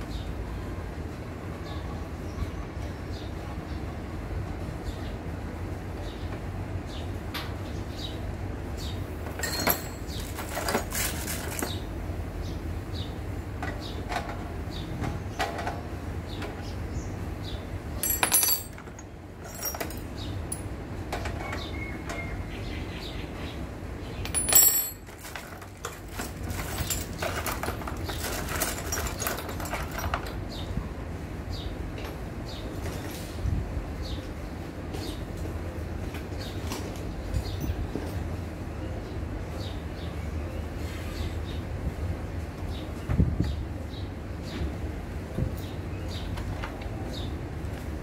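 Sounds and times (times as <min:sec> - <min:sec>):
metal tools clinking: 0:09.3 - 0:11.8, 0:18.0 - 0:20.7, 0:24.2 - 0:30.4.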